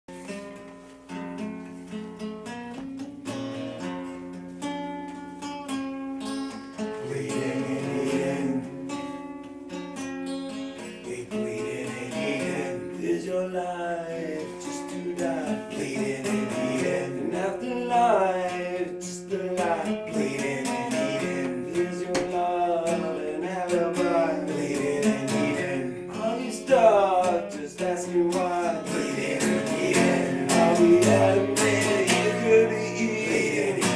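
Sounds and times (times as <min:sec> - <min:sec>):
acoustic guitar playing: 0:00.1 - 0:33.9
person singing: 0:07.0 - 0:08.9, 0:10.8 - 0:33.9.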